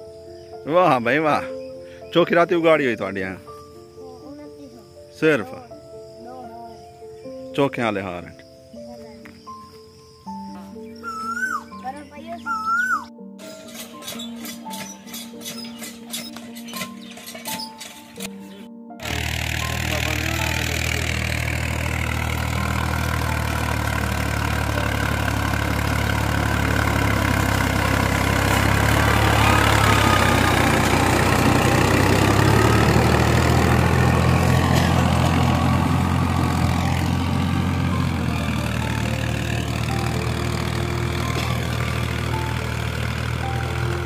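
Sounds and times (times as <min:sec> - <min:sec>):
tractor engine droning: 0:12.8 - 0:44.0.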